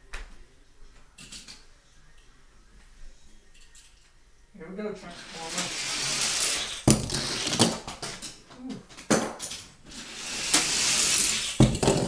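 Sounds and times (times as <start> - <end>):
toy car rolling on plastic track: 5.0 - 8.4, 9.4 - 12.0
toy car clattering knocks: 10.4 - 12.0.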